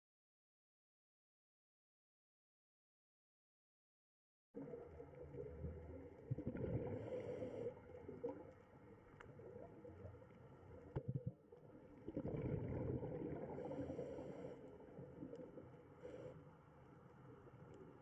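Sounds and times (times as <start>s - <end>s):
underwater bubbling rumble: 4.6s - 16.3s
small underwater clicks: 4.6s - 18.0s.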